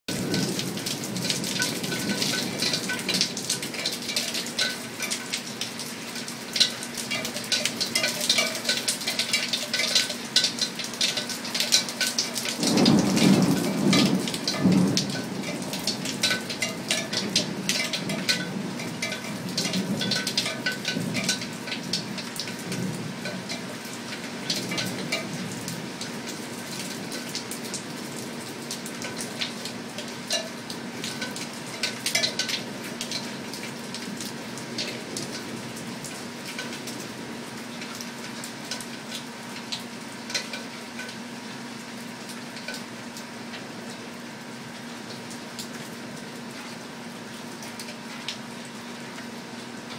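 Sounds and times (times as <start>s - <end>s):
close water drips: 0.1s - 49.9s
steady rain: 0.1s - 49.9s
thunder rumbling: 12.5s - 22.0s.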